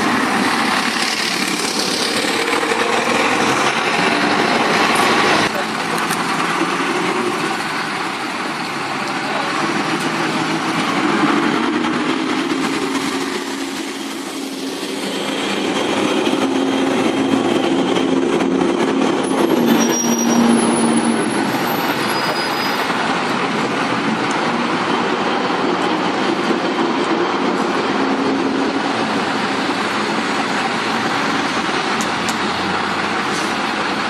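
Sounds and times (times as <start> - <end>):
diesel buses driving past: 0.0 - 34.0
brief high squeal: 19.6 - 22.9.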